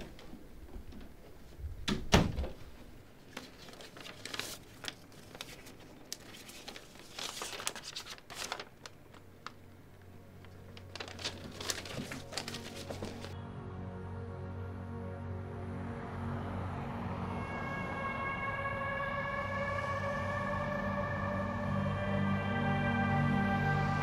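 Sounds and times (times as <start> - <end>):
paper rustling and crinkling: 3.2 - 13.4.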